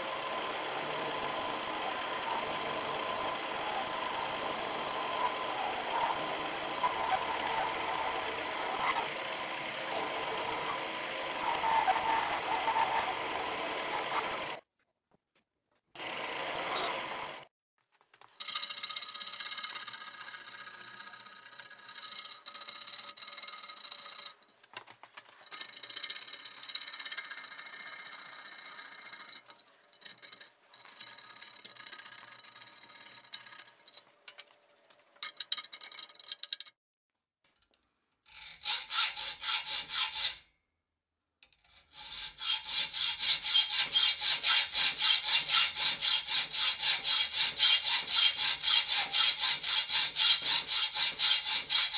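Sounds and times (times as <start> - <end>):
hacksaw cutting through steel rod: 0.0 - 14.6, 38.4 - 40.5, 41.6 - 51.9
deburring tool scraping steel: 0.1 - 14.6, 41.5 - 51.9.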